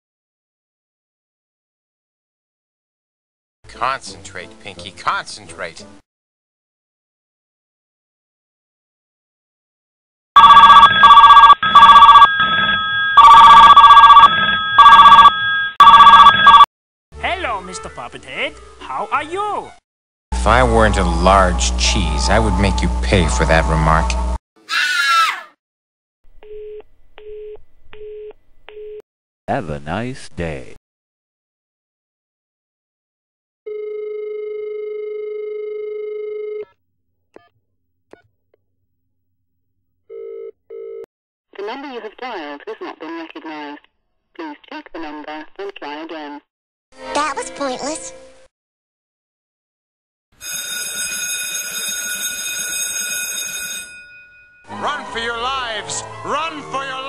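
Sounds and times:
telephone bell ringing: 10.4s - 16.7s, 33.7s - 36.7s, 40.1s - 41.0s, 50.4s - 54.7s.

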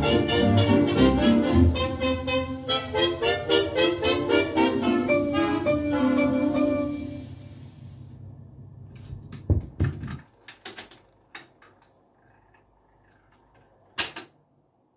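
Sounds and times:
record music playing: 0.0s - 7.6s
turntable low hum: 0.8s - 10.4s, 11.0s - 14.0s.

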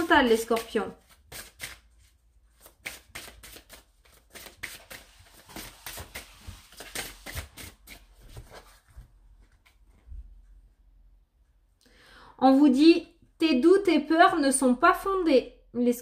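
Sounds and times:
cards being shuffled: 0.2s - 9.8s.

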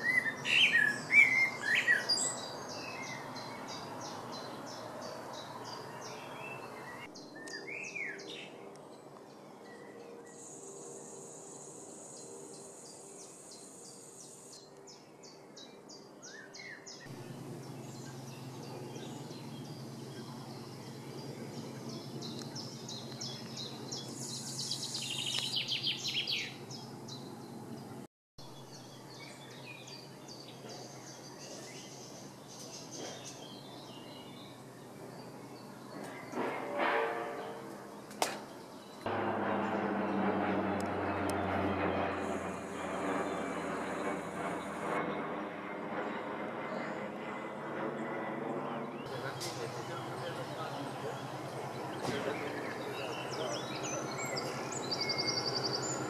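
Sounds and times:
woodland birds singing: 0.0s - 36.6s, 37.4s - 39.1s, 48.0s - 56.0s
high bird chirps: 17.1s - 27.4s
low background hum: 17.1s - 28.0s.

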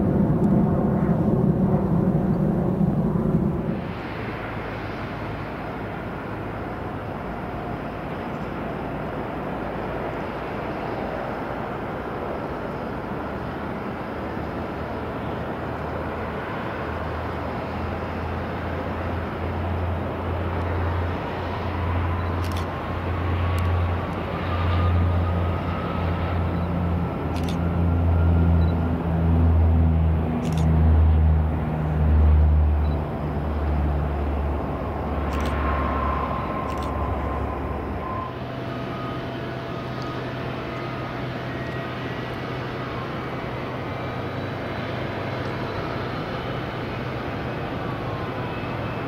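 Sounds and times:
low rumble: 0.0s - 6.7s
jet engine whine: 0.0s - 49.0s.

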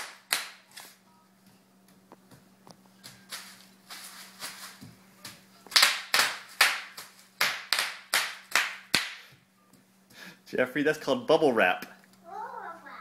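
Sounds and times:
bubble wrap popping underfoot: 2.9s - 8.9s.

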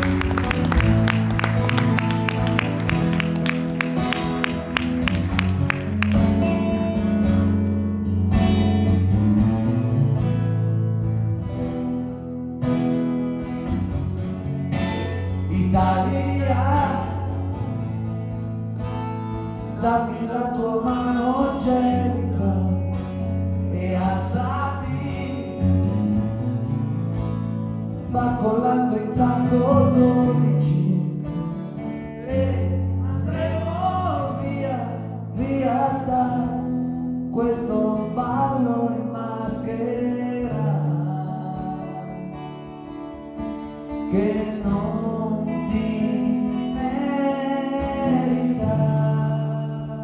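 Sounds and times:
rock band playing: 0.0s - 9.5s
man singing: 15.4s - 17.8s, 19.7s - 26.0s, 28.0s - 42.4s, 44.0s - 50.0s.

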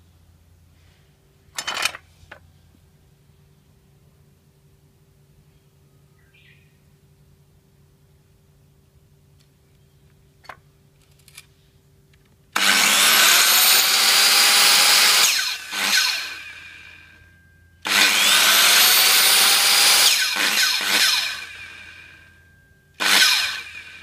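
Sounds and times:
circular saw motor whining: 12.6s - 24.0s.

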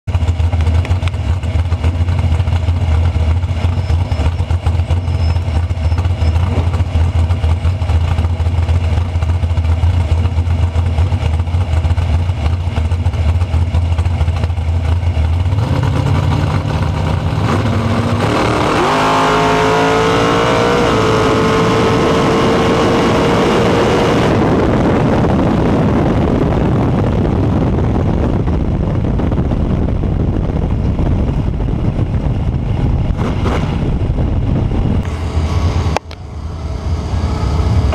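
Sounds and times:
dragster engine revving: 0.1s - 37.9s
wind rush: 15.4s - 37.9s.

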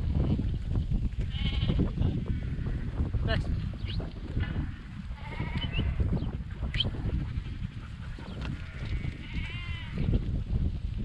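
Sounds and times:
sheep bleating: 1.3s - 2.8s, 5.1s - 6.1s, 8.7s - 10.1s.

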